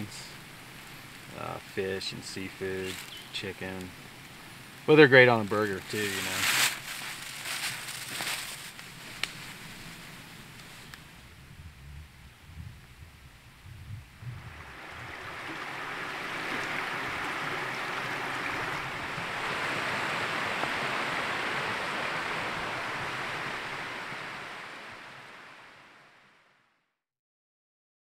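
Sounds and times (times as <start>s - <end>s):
stream rushing: 0.0s - 8.2s, 14.4s - 26.4s.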